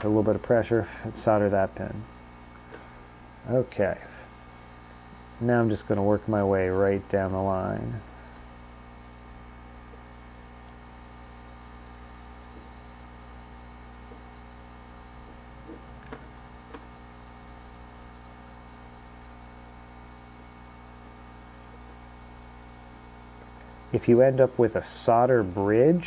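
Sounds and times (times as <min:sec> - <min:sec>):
electrical mains hum: 0:00.0 - 0:26.0
faint high whine: 0:00.0 - 0:26.0
faint small ticks: 0:21.6 - 0:22.1.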